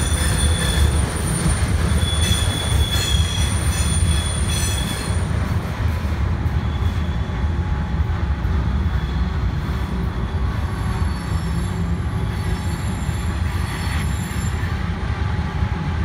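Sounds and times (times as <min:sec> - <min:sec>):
wheel squeal: 0:00.0 - 0:05.3, 0:10.7 - 0:14.9
train cars rumbling on rails: 0:00.0 - 0:16.0.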